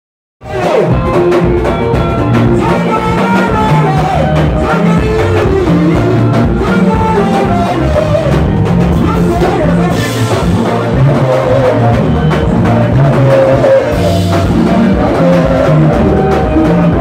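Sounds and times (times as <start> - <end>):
drum-kit groove: 0.4 - 17.0
people singing: 2.2 - 8.4, 9.0 - 17.0.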